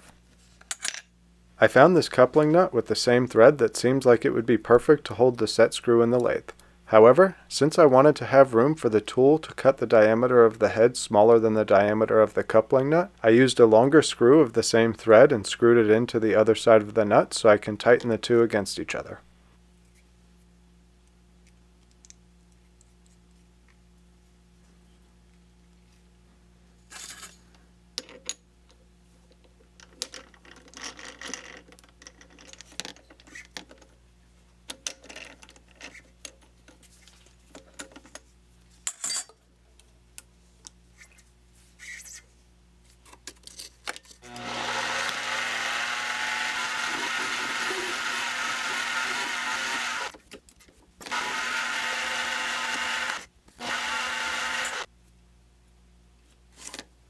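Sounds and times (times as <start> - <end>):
metal lathe running: 44.3 - 50.1, 51.1 - 54.8.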